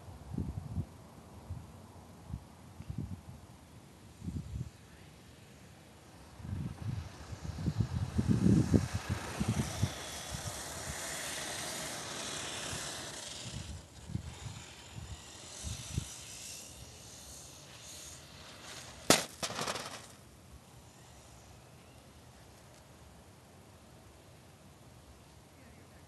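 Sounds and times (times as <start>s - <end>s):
wind on microphone: 6.3s - 17.2s
camera hitting ground crack: 18.6s - 20.2s.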